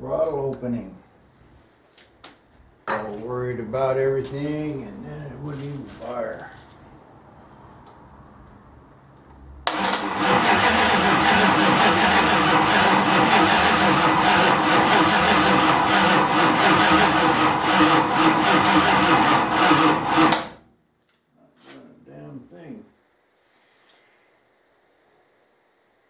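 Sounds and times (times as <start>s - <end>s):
starter cranking engine: 9.7s - 20.6s.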